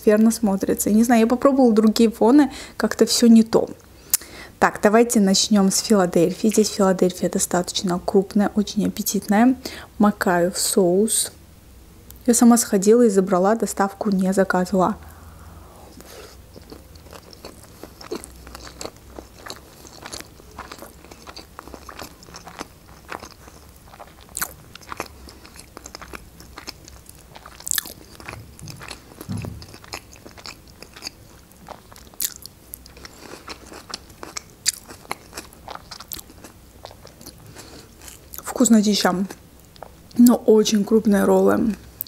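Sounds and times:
person chewing: 0:15.0 - 0:38.4, 0:39.3 - 0:40.2.

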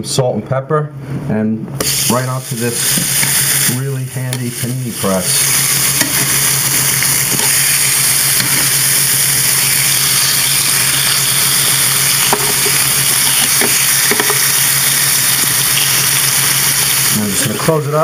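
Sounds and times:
chicken sizzling on grill: 0:01.8 - 0:18.0.

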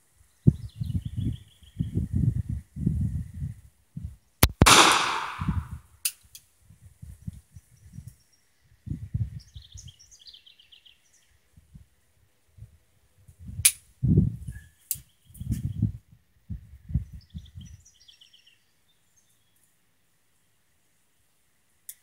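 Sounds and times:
revolver gunshot: 0:04.4 - 0:05.7.

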